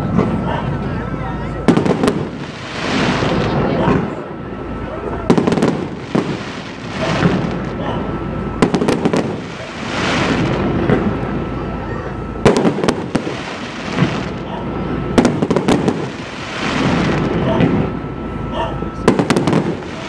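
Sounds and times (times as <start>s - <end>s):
noisy wash: 0.0s - 20.0s
fireworks bangs: 1.6s - 4.3s, 5.1s - 11.5s, 12.4s - 18.1s, 19.0s - 20.0s.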